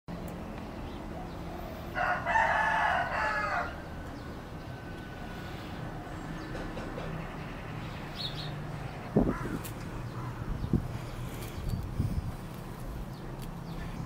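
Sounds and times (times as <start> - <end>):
rooster crowing: 1.6 - 5.3.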